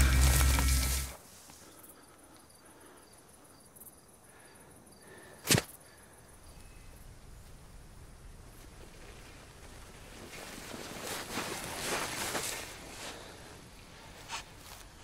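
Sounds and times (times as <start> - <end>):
loud low rumble with music: 0.0 - 1.1
high insect chirps: 0.0 - 1.2
sharp crack: 5.4 - 5.7.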